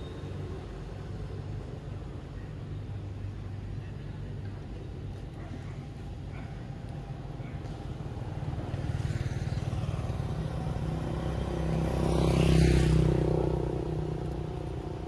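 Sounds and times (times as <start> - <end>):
low engine hum: 0.5 - 15.0
vehicle engine passing by: 7.9 - 15.0.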